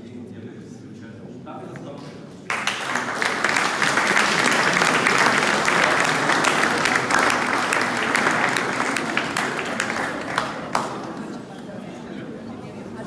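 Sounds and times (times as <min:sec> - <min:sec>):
audience applauding: 0:02.5 - 0:11.4.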